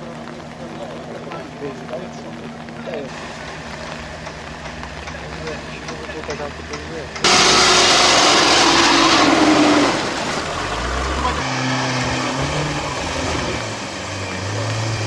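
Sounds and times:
off-road engine revving: 0.0 - 15.0
loud rushing noise: 7.2 - 15.0.

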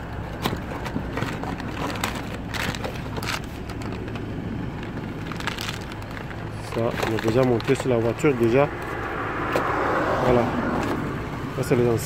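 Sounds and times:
foil and cardboard crinkling: 0.0 - 8.6.

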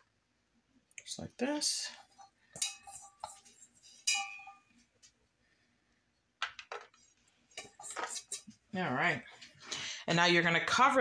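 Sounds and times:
metal mixing bowl clinking: 1.7 - 4.7, 6.7 - 8.4.

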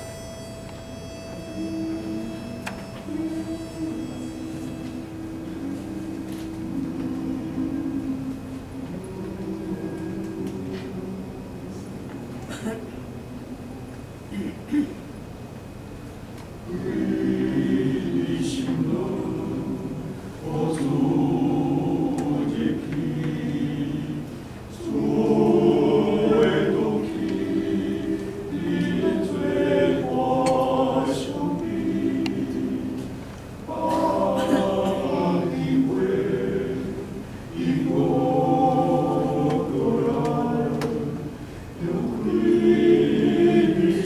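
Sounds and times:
men singing a hymn in harmony: 16.7 - 44.0.

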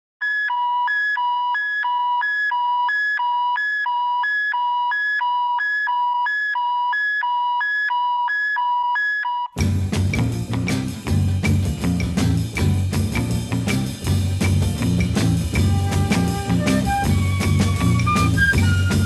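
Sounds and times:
two-tone electronic alarm beeps: 0.2 - 9.6.

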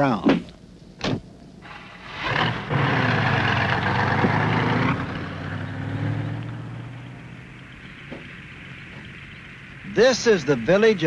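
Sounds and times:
truck engine starting and revving: 1.6 - 8.7.

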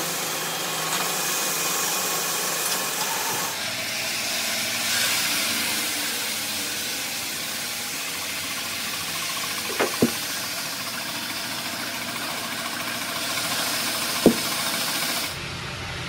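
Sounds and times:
polishing machines hissing: 0.0 - 15.4
sharp knocks: 9.6 - 10.2, 14.2 - 14.7.

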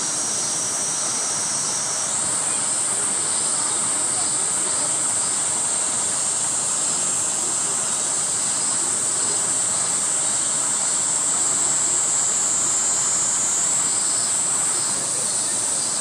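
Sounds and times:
cicadas singing: 0.0 - 16.0
outdoor background rush: 0.0 - 16.0.

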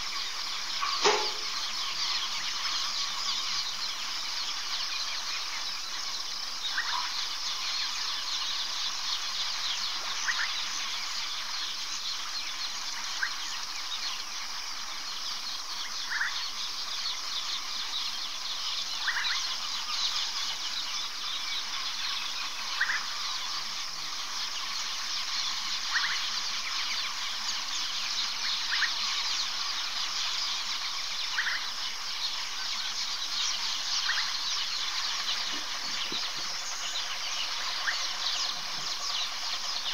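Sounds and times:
short high insect call: 0.0 - 8.3
insect chorus: 0.0 - 39.9.

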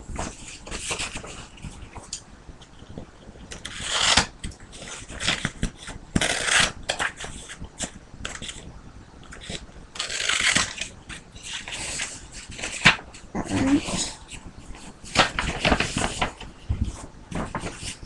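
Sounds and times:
paper rustling and crinkling: 0.1 - 2.2, 9.3 - 18.0
scissors cutting paper: 3.5 - 8.6, 9.3 - 10.9.

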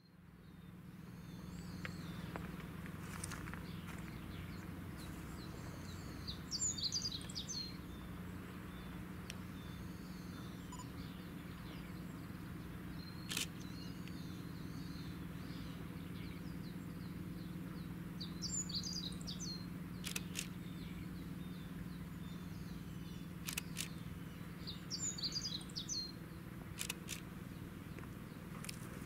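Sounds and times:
songbirds chirping: 0.0 - 29.0
steady low drone: 0.0 - 29.0
sharp clicks: 13.3 - 14.2, 20.0 - 20.6, 23.4 - 24.0, 26.8 - 27.3.

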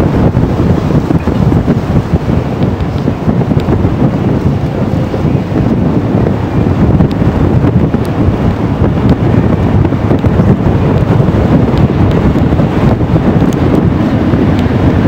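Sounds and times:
passing train: 0.0 - 15.0
wind buffeting microphone: 0.0 - 15.0.

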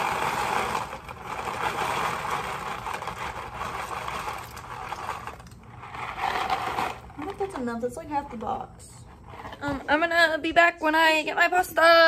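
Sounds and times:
dry pasta pouring into a pot: 0.0 - 7.2.

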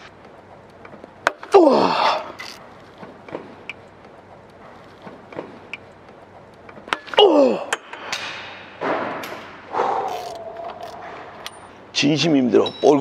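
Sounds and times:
man groaning: 1.4 - 2.4, 7.1 - 7.8
breathy exhalations: 9.7 - 11.4.

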